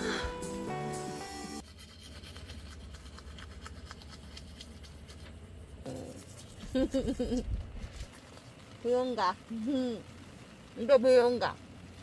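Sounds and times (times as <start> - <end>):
toothbrush scrubbing teeth: 1.6 - 8.5.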